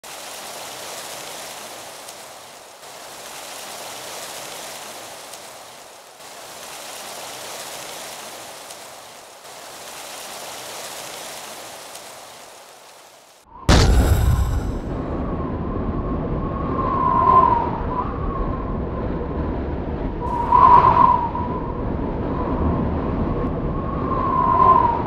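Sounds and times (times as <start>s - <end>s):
rain falling: 0.0s - 14.9s.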